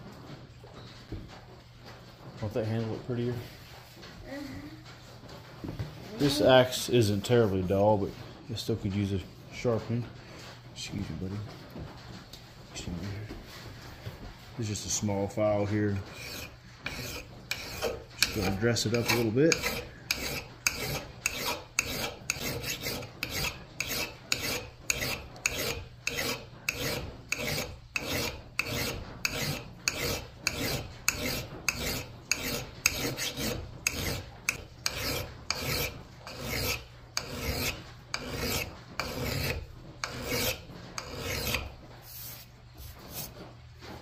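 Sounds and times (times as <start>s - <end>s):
hand file rasping on steel: 15.6s - 43.4s.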